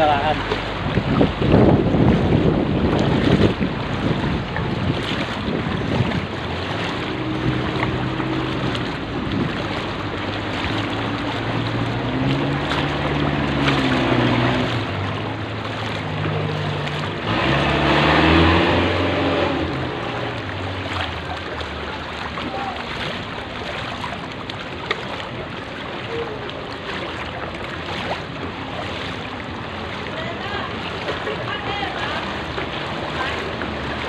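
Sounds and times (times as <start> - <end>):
wind on microphone: 0.0 - 21.4
floodwater splashing: 0.0 - 34.0
rush of water: 0.0 - 34.0.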